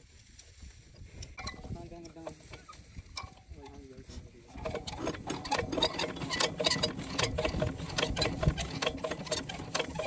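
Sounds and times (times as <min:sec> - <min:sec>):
diesel engine ticking and clicking: 0:05.0 - 0:10.0.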